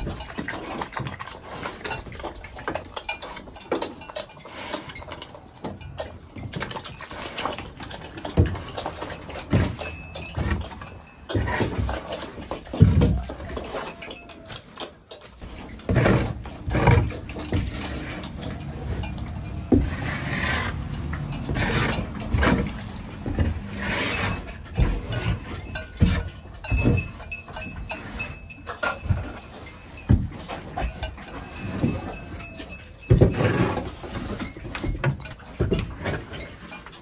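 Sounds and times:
shovel scraping manure: 0:06.8 - 0:34.8.

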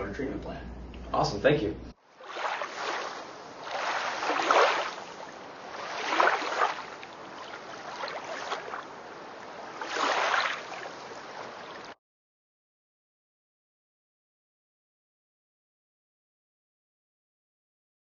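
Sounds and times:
water rushing and splashing: 0:02.0 - 0:12.0.

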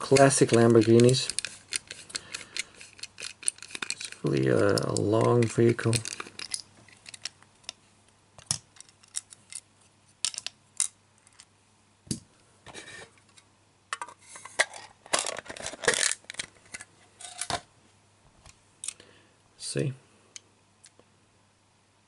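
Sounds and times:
screwdriver working a screw: 0:00.0 - 0:07.3.

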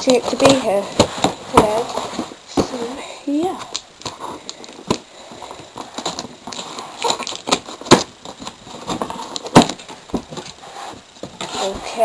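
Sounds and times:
packaging crackling and rustling: 0:00.0 - 0:12.0
packaging snaps: 0:05.7 - 0:10.6.

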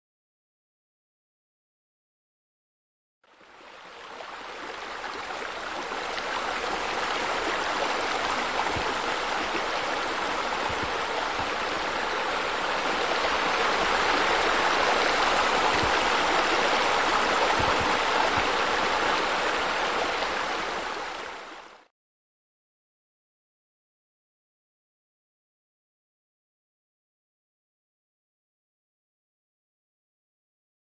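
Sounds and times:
running splashing water: 0:04.1 - 0:21.1.

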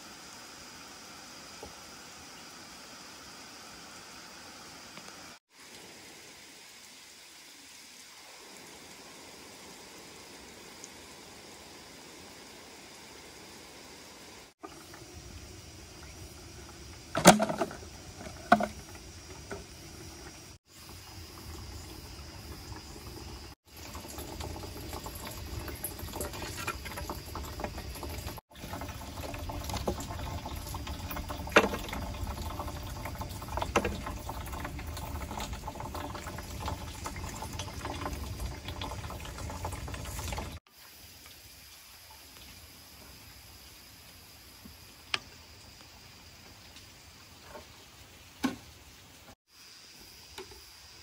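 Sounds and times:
liquid bubbling and trickling: 0:14.4 - 0:43.2.

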